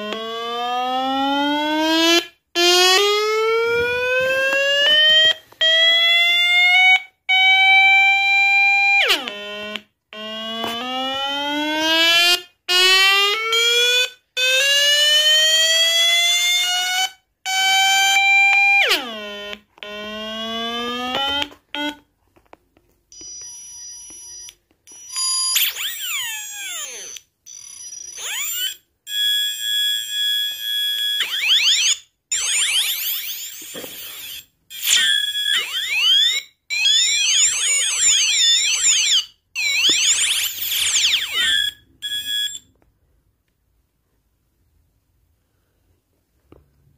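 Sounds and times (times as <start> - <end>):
rising electronic siren tones: 0.0 - 22.0, 24.4 - 28.8, 31.0 - 42.6
electronic beeps: 39.6 - 42.7.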